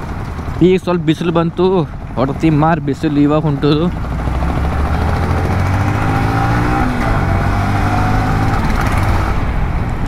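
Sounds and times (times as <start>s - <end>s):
motorcycle engine running: 0.0s - 6.7s
wind and road noise: 0.0s - 10.0s.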